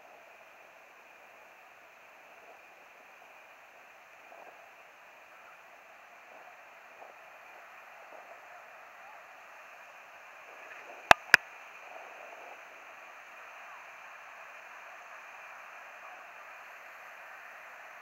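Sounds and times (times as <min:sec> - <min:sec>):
beach ambience: 0:10.7 - 0:11.4
sharp clicks: 0:11.1 - 0:11.4.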